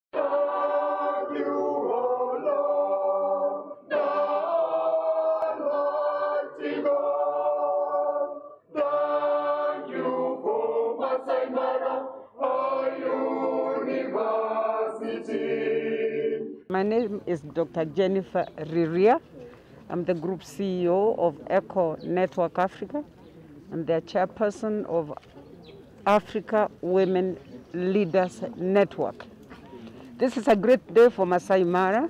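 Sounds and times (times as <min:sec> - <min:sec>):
choir singing sustained chords: 0:00.2 - 0:16.7.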